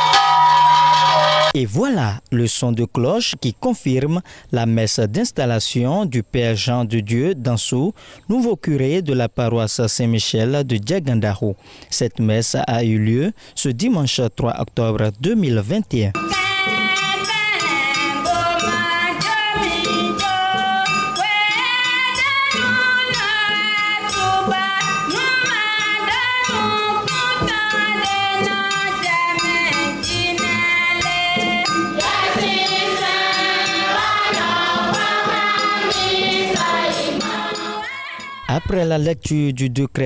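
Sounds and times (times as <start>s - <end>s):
women's choir singing a hymn: 16.3s - 38.4s.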